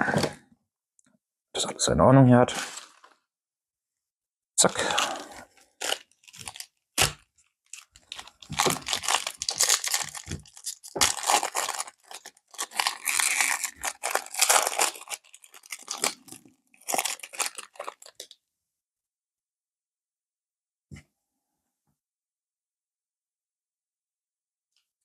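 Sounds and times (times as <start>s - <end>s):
wrapper rustling: 4.8s - 18.3s
card pack wrappers tearing: 5.8s - 7.2s, 7.8s - 18.3s.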